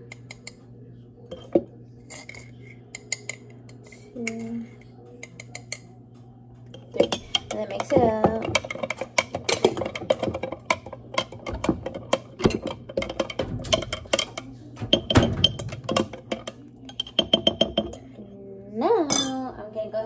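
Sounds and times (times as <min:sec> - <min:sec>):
spoon clinking in a glass jar: 0:19.1 - 0:19.4.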